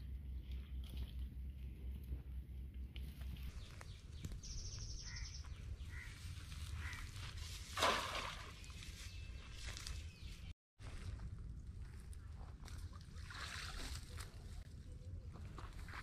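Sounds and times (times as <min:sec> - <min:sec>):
faint bird chirps: 0:03.5 - 0:06.2
wind rumble on microphone: 0:08.6 - 0:16.0.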